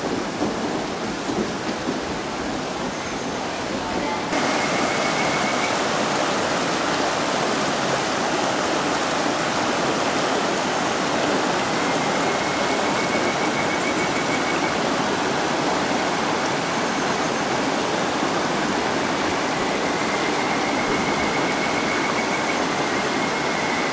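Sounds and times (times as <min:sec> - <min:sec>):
stream rushing over rocks: 0:00.0 - 0:23.9.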